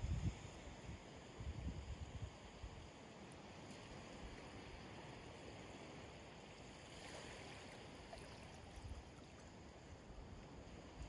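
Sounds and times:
shallow water lapping over sand: 2.9 - 11.0.

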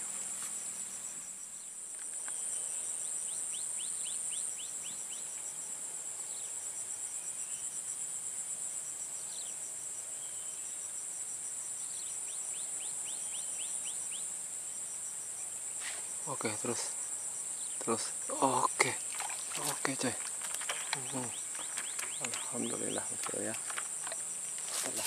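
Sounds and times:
high-pitched insect chorus: 0.0 - 25.0
insect pulsing rapidly: 17.8 - 25.0.

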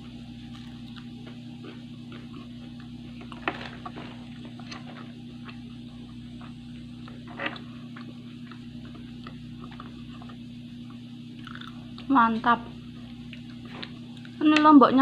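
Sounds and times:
steady low hum: 0.0 - 15.0
crisp chewing mouth sounds: 0.4 - 3.0, 4.6 - 12.1.

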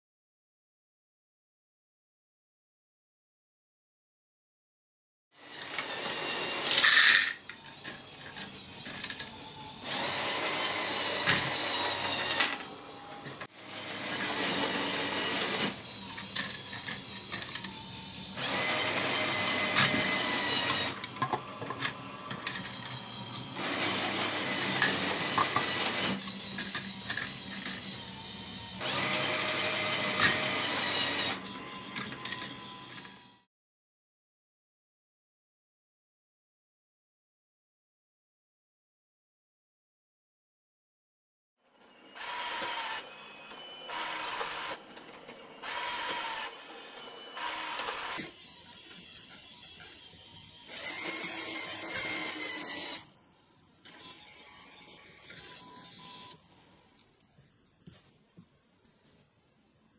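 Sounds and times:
electric motors whirring: 5.4 - 33.5, 41.7 - 57.1.

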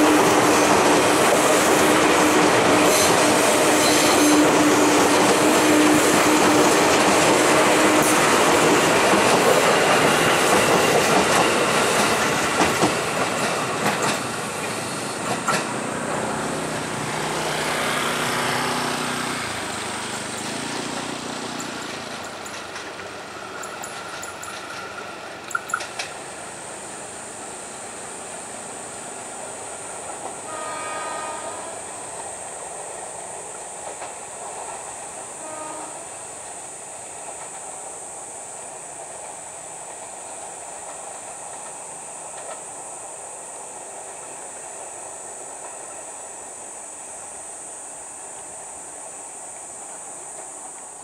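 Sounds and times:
electric train rumbling: 0.0 - 51.0
short train horn: 2.2 - 6.7, 30.4 - 32.1, 35.4 - 36.2.

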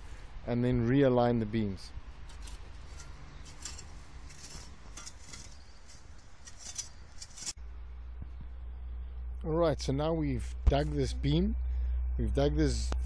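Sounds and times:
steady low rumble: 0.0 - 13.0
spade scraping in soil: 2.2 - 7.6.

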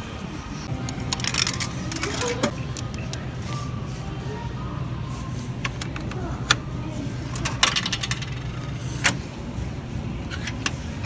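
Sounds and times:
coins clinking in vending machine: 0.8 - 3.2, 7.2 - 9.1.

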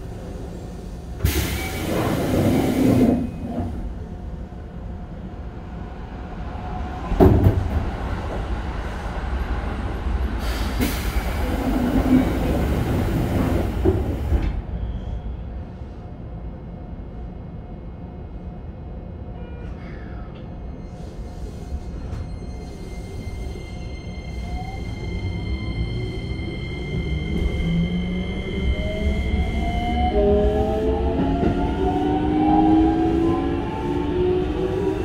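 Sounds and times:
train wheels rumbling on rail: 0.0 - 16.0, 24.3 - 35.0.

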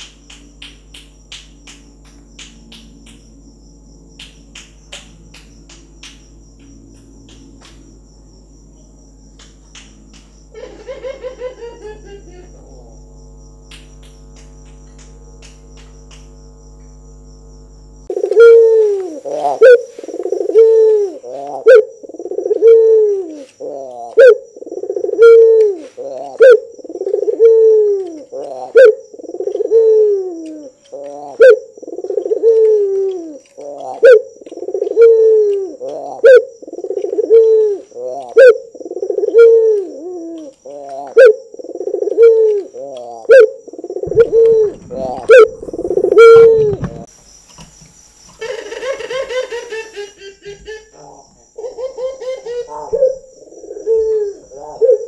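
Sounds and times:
dove cooing: 18.1 - 47.1, 50.6 - 55.0.

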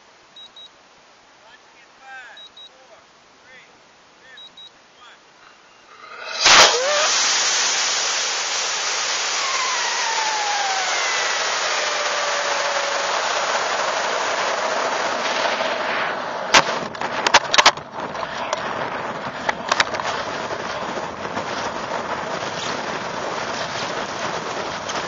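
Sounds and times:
rush of air over camera: 5.9 - 25.0
sharp clicks and knocks: 16.6 - 17.9.

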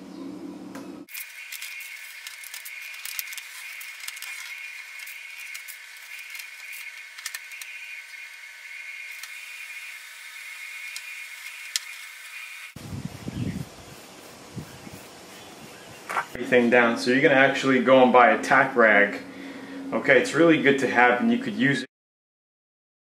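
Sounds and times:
tape being cut and peeled: 1.1 - 10.0, 10.6 - 12.7
steady hiss: 1.1 - 17.2.

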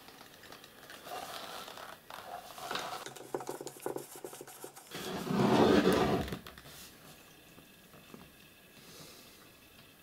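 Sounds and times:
metal case scraping on wooden table: 4.9 - 6.4.

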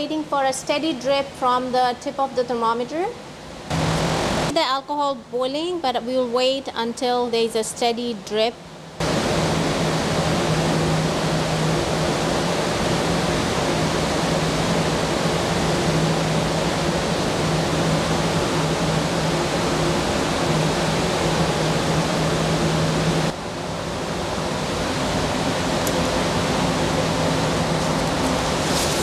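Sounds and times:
steady rushing noise: 8.9 - 29.0.

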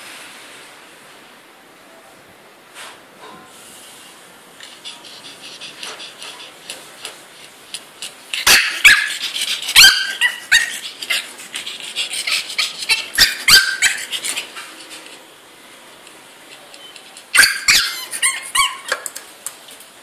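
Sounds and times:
puppy yipping and barking: 8.3 - 14.7, 17.3 - 19.0.

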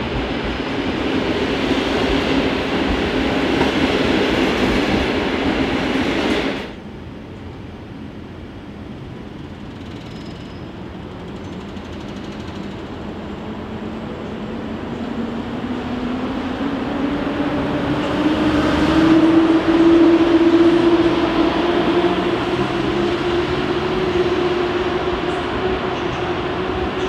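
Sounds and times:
train rumble: 0.0 - 27.0.

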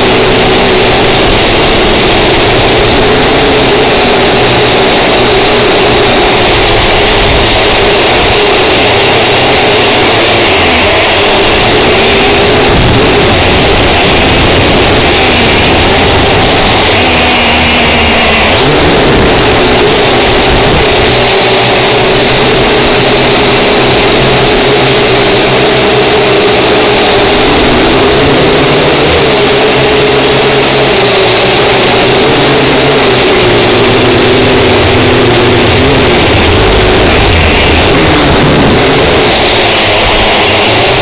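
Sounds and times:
drone propellers whining: 0.0 - 41.0.

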